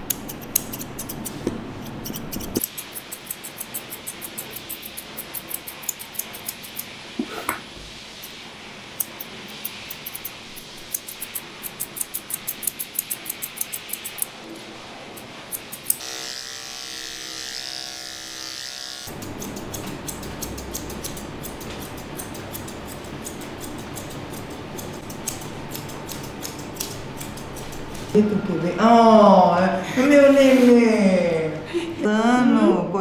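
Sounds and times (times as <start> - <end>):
scissors snipping fur: 0.0 - 6.9, 9.0 - 14.3, 15.2 - 16.1, 19.1 - 28.2
steady electric hum: 0.0 - 33.0.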